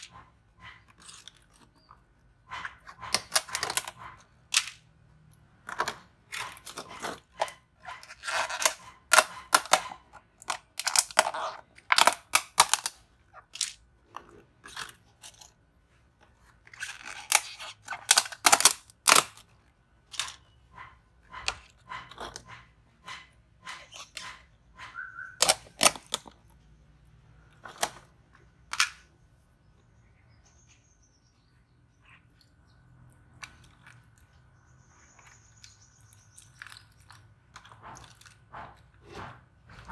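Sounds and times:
plastic tubs and tweezers clattering: 0:00.0 - 0:26.8, 0:27.4 - 0:29.2.

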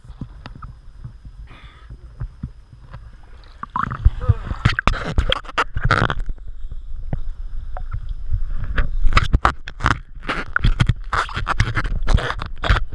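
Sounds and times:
water splashing: 0:00.0 - 0:06.2.

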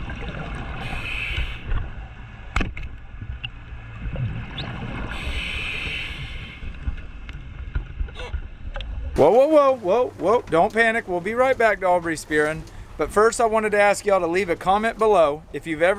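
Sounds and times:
diver inhaling through regulator: 0:00.8 - 0:01.7, 0:05.0 - 0:06.8.

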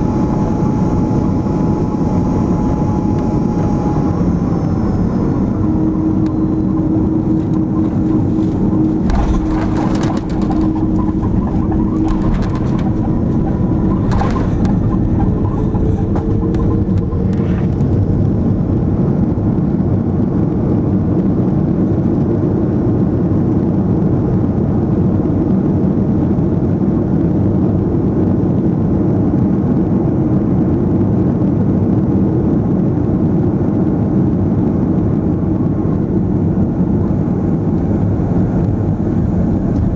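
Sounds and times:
engine and runway noise: 0:00.0 - 0:39.9
airliner landing jolts: 0:06.1 - 0:18.0.

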